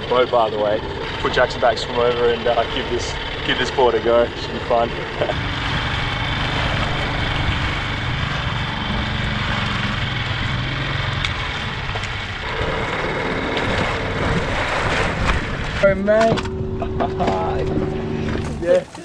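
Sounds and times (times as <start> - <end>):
small outboard motor running: 0.0 - 19.0
wind rushing over microphone: 5.3 - 18.6.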